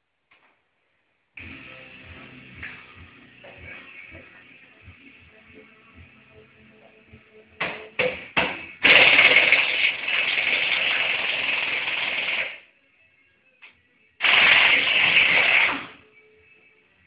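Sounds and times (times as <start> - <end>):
pneumatic impact wrench: 8.8 - 12.6, 14.2 - 16.0.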